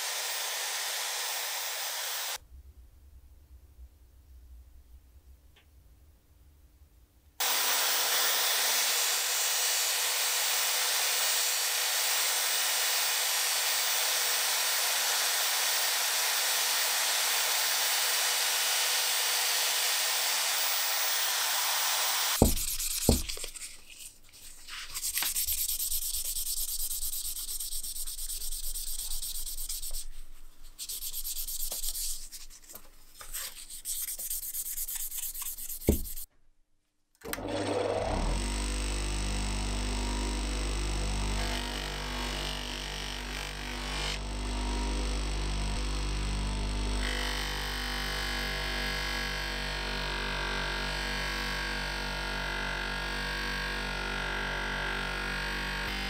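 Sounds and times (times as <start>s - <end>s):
knocks: 22.4s - 23.3s
hand sanding metal: 22.4s - 23.8s, 24.4s - 36.3s
sandpaper hissing on spinning metal: 24.9s - 30.2s, 30.8s - 32.5s, 33.4s - 36.3s.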